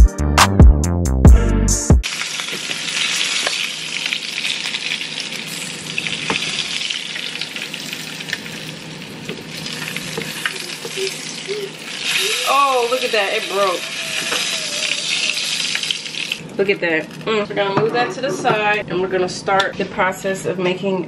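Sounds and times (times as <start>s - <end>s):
fish sizzling in frying pan: 2.0s - 17.3s.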